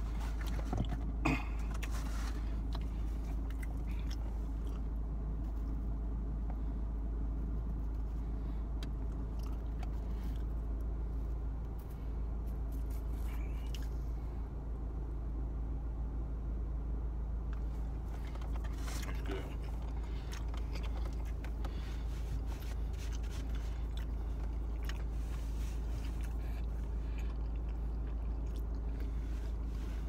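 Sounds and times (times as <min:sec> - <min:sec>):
person chewing food: 0:00.0 - 0:05.8, 0:08.8 - 0:10.8, 0:17.5 - 0:30.0
steady low hum: 0:00.0 - 0:30.0.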